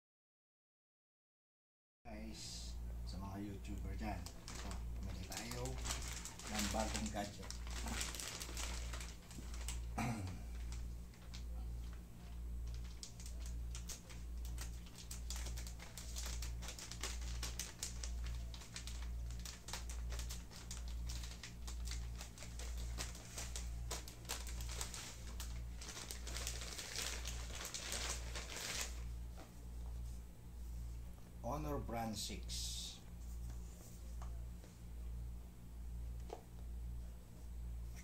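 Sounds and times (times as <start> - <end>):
low pulsing hum: 2.1 - 38.0
plastic packaging crinkling: 3.9 - 29.2.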